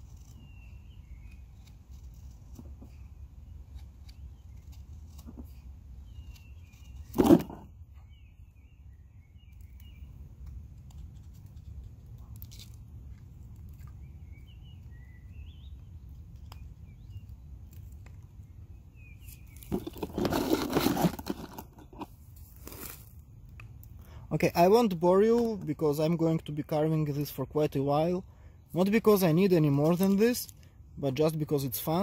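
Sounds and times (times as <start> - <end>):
knife shaving wood: 0.0 - 7.7, 9.5 - 14.1, 19.2 - 23.2
small birds chirping: 0.0 - 22.2.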